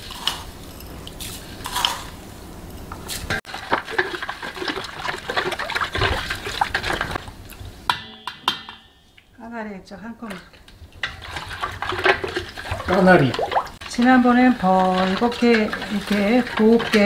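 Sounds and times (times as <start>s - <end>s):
spoon stirring water in metal bowl: 3.5s - 7.2s, 11.0s - 17.0s.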